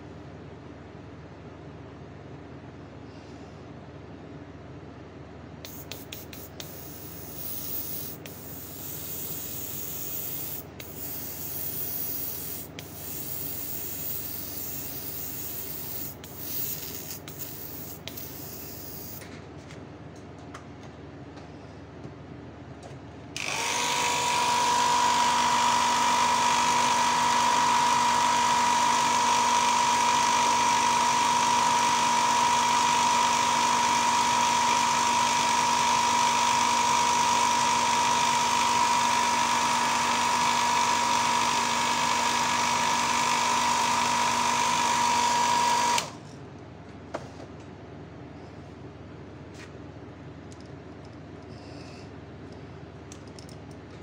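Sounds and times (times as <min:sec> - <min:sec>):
small electric motor whining: 0:05.7 - 0:19.2, 0:23.4 - 0:46.1.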